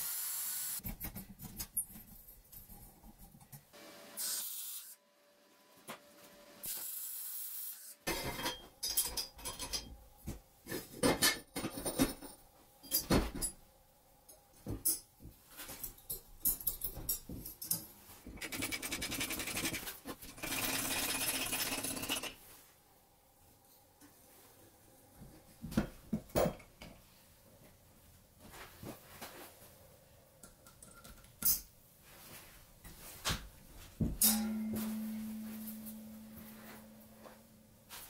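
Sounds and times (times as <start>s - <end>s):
fast metallic rattle: 18.4s - 22.4s.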